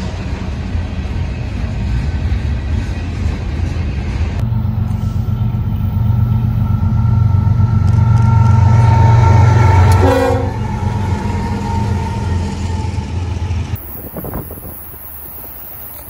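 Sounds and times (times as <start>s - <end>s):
diesel locomotive engine drone: 0.0s - 16.0s
freight cars rolling past: 0.0s - 16.0s
short tone: 4.4s - 13.2s.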